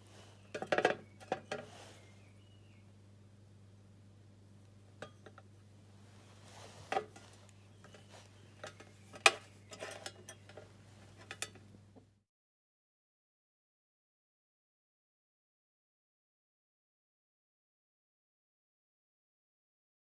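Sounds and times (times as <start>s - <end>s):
steady low hum: 0.0s - 12.2s.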